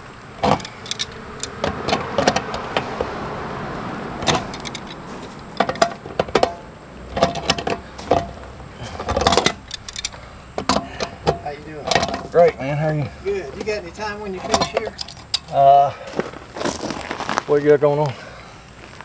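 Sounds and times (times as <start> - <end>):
steady rushing noise: 0.0 - 14.8
wrench clicking on metal valve: 0.5 - 1.6, 9.3 - 11.2.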